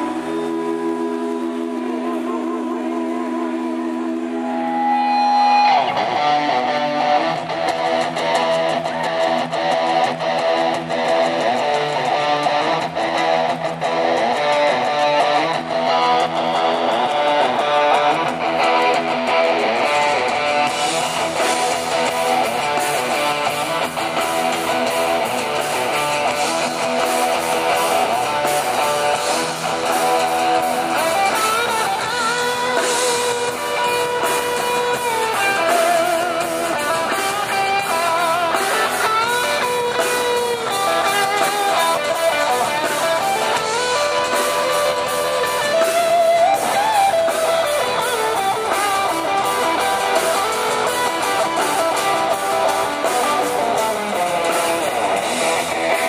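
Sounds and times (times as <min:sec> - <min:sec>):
wavering bending melody line: 0:00.0 - 0:06.2
electric guitars strummed: 0:00.0 - 0:56.0
rock band playing: 0:00.0 - 0:56.0.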